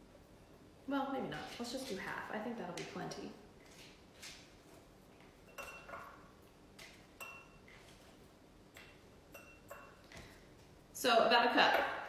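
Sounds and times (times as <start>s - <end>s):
glassy ping: 5.5s - 6.2s, 7.2s - 7.6s, 8.8s - 10.0s.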